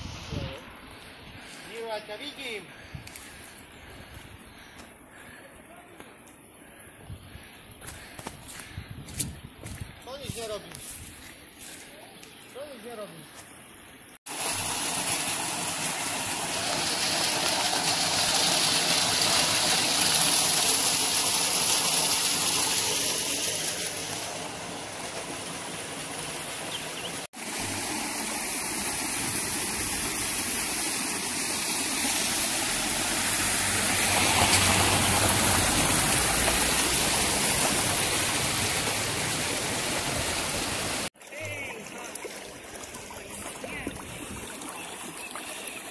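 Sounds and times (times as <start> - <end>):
water rushing through channel: 14.3 - 45.9.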